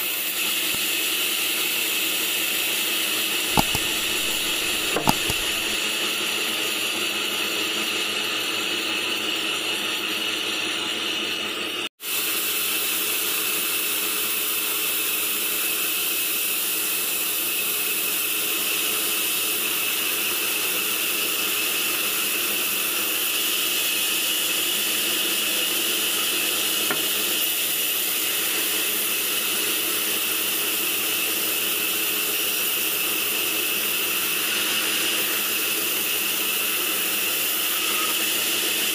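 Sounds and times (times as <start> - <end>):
band saw cutting log: 3.5 - 5.8.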